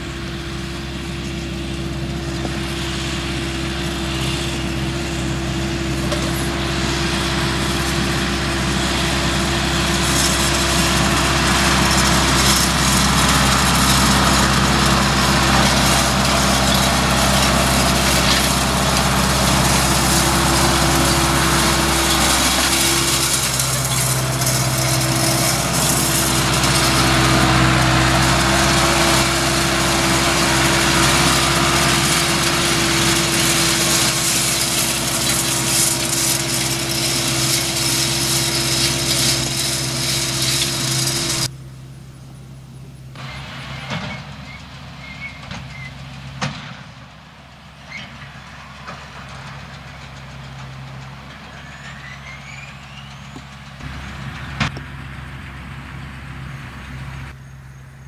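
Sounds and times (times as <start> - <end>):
rake wheels swishing through hay: 0.0 - 41.5
tractor engine running: 0.0 - 58.0.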